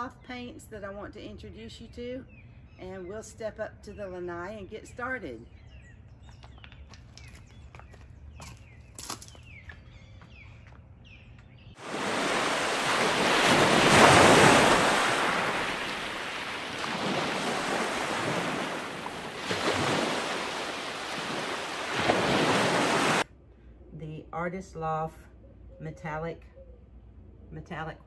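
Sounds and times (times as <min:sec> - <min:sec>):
bird chirps: 0:03.9 - 0:11.8
ocean surf: 0:11.8 - 0:23.2.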